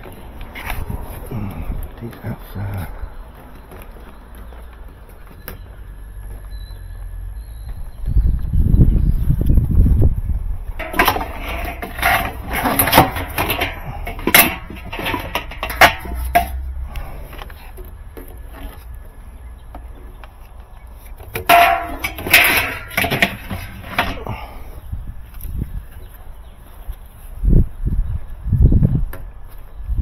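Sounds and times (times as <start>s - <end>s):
plastic parts knocking and rattling: 10.8s - 16.6s, 21.2s - 24.4s.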